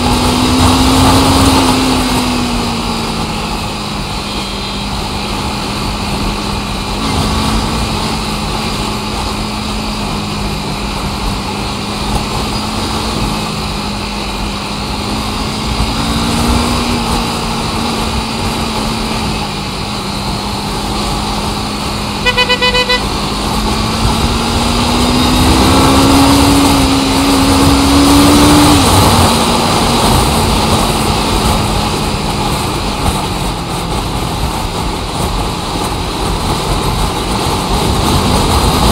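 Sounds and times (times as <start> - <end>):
engine revving: 0.0 - 38.9
vehicle engine running: 0.0 - 38.9
car horn short beeps: 4.2 - 5.0, 22.2 - 23.1.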